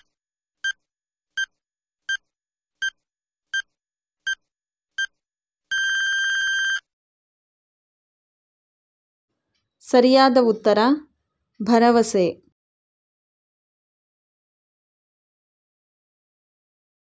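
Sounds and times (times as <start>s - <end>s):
long electronic beep: 5.7s - 6.8s.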